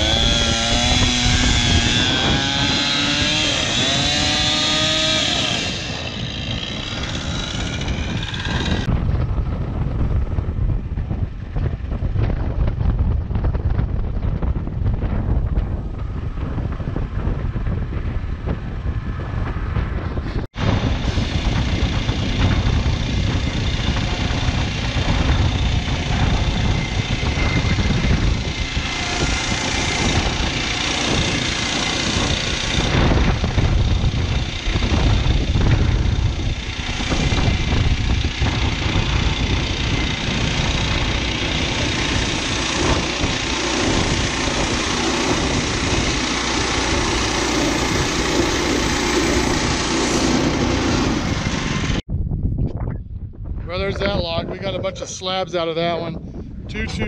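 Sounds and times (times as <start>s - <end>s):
band saw blade sawing wood: 0.0s - 8.9s, 23.6s - 52.0s
gas engine running under load: 0.0s - 13.8s, 14.8s - 52.0s
wind on microphone: 0.0s - 57.0s.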